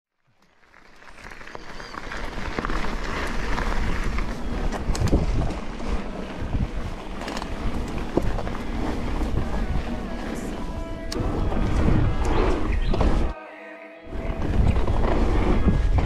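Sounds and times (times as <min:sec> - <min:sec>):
bike knocks and rattles: 0:01.2 - 0:13.3
wind buffeting microphone: 0:02.0 - 0:13.4, 0:14.1 - 0:16.0
low rumble: 0:03.6 - 0:13.3.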